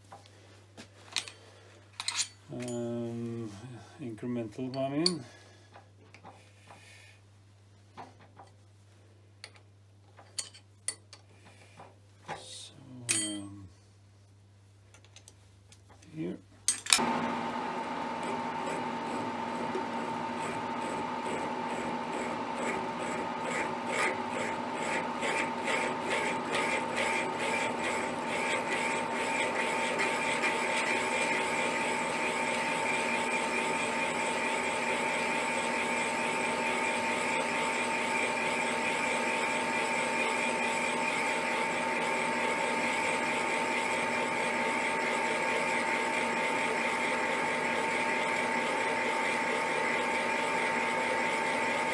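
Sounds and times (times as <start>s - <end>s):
milling machine whine: 17.0s - 51.9s
boring cut in steel: 18.2s - 51.9s.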